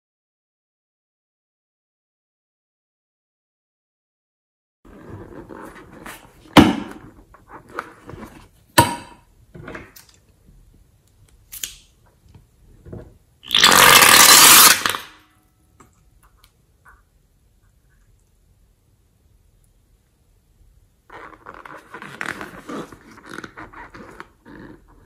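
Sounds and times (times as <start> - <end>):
rubbery balloon handling: 4.9 - 8.7, 21.1 - 25.0.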